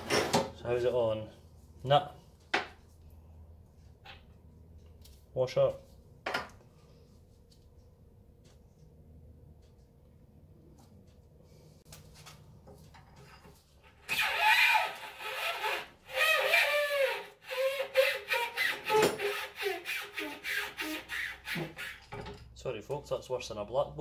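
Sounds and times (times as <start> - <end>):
metal-on-metal screeching: 14.0 - 22.3.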